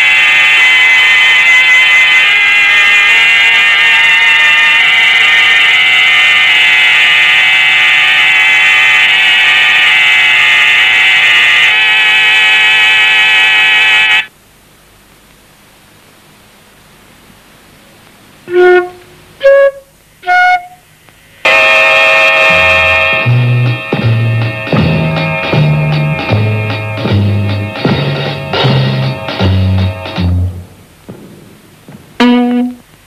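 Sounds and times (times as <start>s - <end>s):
harsh buzzing drone: 0.0s - 14.3s, 21.3s - 33.0s.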